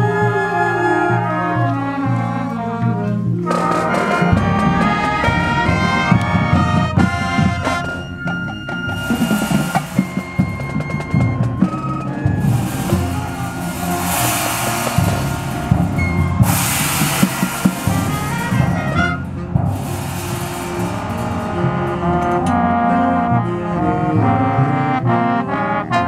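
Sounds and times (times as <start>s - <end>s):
held keyboard notes: 0.0s - 26.0s
marching band drums: 3.4s - 24.9s
bright cymbal crashes: 12.4s - 22.7s.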